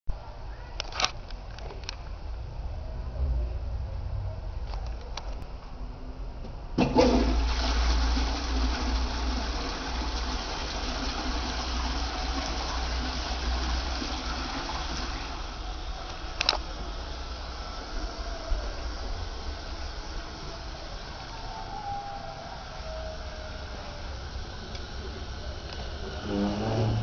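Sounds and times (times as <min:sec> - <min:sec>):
toilet flushing: 0:06.8 - 0:27.0.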